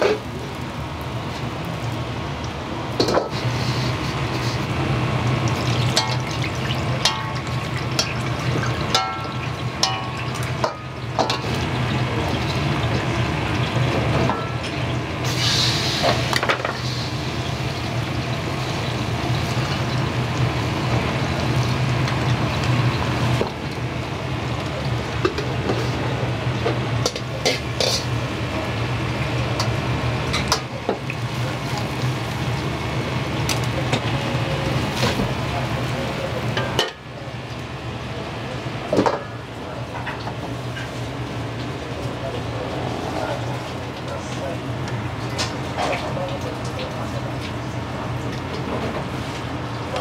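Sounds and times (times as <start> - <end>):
food frying in a wok: 0.0 - 50.0
utensils clanking on pan: 5.9 - 11.6, 26.7 - 28.1.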